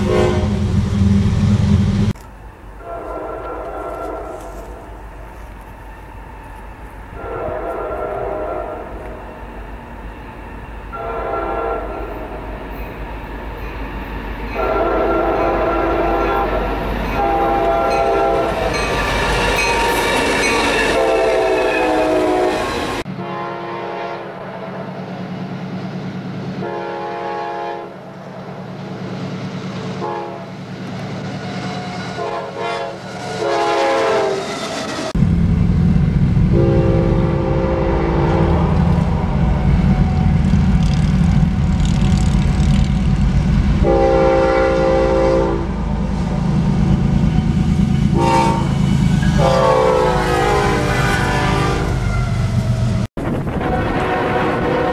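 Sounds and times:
locomotive air horn blasts: 0.0s - 0.8s, 2.8s - 4.8s, 7.1s - 9.0s, 10.9s - 12.3s, 14.6s - 18.8s, 20.6s - 24.4s, 26.6s - 28.0s, 30.0s - 30.5s, 32.2s - 34.4s, 36.5s - 40.2s, 43.8s - 45.8s, 47.4s - 52.4s, 53.6s - 54.9s
diesel engine rumble: 0.0s - 2.8s, 38.6s - 43.9s.

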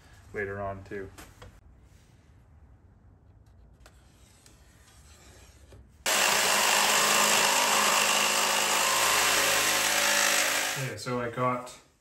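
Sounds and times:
power tool cutting plywood: 6.1s - 10.9s.

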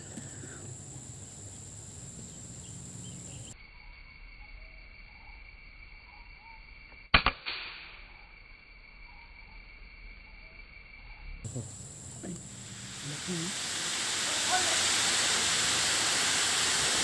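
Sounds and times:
high insect drone: 0.0s - 7.1s, 7.9s - 17.0s
air rifle shot: 7.1s - 8.0s.

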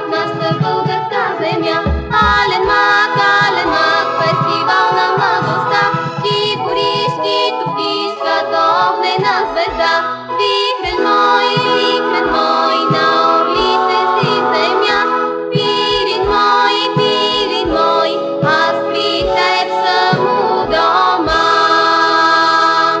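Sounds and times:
girls singing in harmony: 0.0s - 23.0s
band accompaniment with bass beat: 0.2s - 7.1s.

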